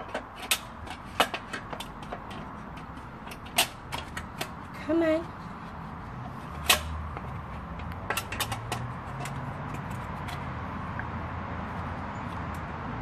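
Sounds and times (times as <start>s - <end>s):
grill parts clicking together: 0.0s - 4.7s, 6.6s - 10.5s.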